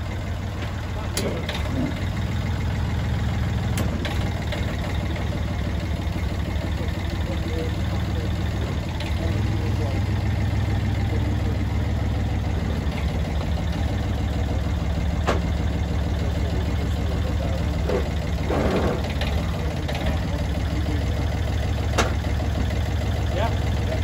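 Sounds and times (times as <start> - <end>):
tracked dumper engine running: 0.0 - 24.0.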